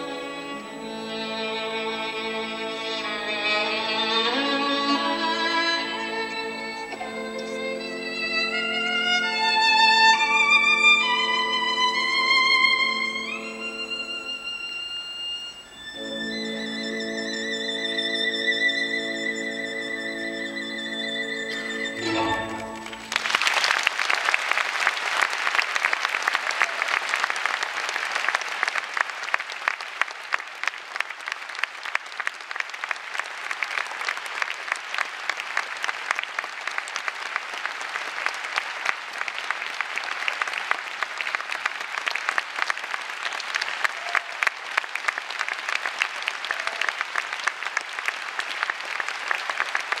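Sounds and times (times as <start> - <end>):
orchestra playing: 0.0 - 23.6
audience applauding: 2.9 - 17.5, 21.5 - 50.0.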